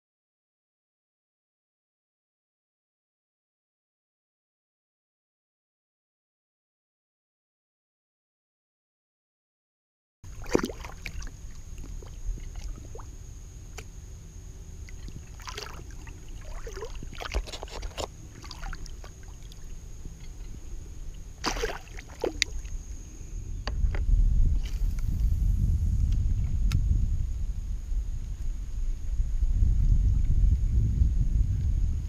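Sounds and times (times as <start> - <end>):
water splashing: 10.3 - 13.1, 14.8 - 19.8, 21.1 - 22.8
low microphone rumble: 10.3 - 32.0.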